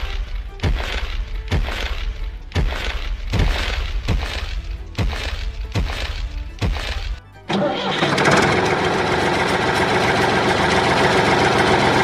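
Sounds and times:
music with sharp crashing hits: 0:00.0 - 0:07.2.

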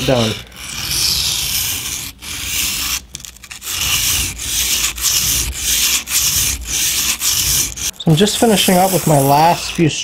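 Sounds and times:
knife grinding on whetstone: 0:00.0 - 0:10.0.

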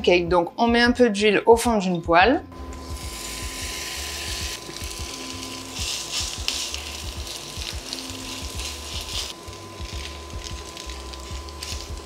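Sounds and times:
induction hob hum: 0:02.3 - 0:12.0
pancake sizzling in hot oil: 0:02.9 - 0:12.0.

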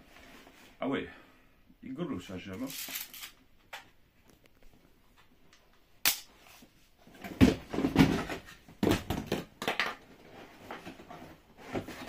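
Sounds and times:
cardboard knocks and rustles: 0:07.2 - 0:09.8.

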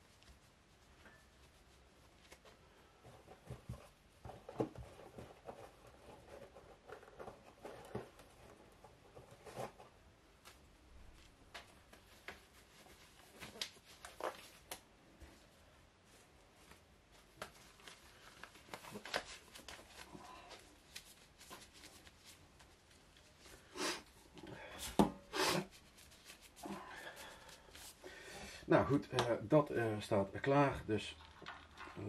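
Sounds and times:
faint handling taps and rustles: 0:00.0 - 0:15.5, 0:16.1 - 0:23.5.

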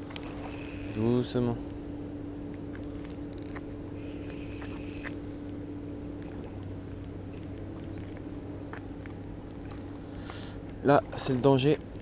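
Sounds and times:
low hum: 0:00.0 - 0:12.0
fishing reel drag clicking: 0:00.1 - 0:01.8, 0:03.1 - 0:05.6.

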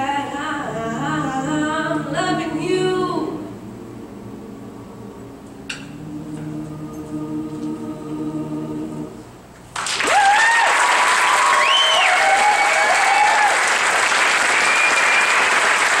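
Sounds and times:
vocal group singing a chord: 0:00.0 - 0:09.5
audience applause and cheers: 0:09.8 - 0:16.0.

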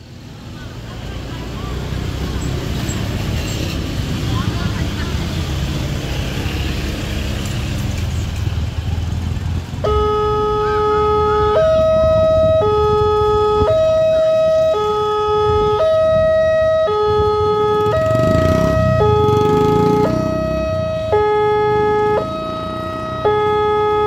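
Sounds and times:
road traffic: 0:00.0 - 0:24.0
level-crossing two-tone alarm: 0:09.8 - 0:24.0.

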